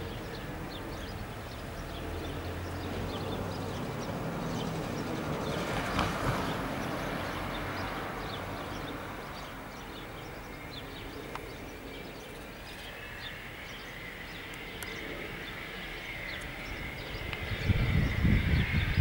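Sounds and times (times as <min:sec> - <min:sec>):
birds chirping: 0:00.0 - 0:19.0
distant jet rumble: 0:00.0 - 0:19.0
faint jet whine: 0:00.0 - 0:19.0.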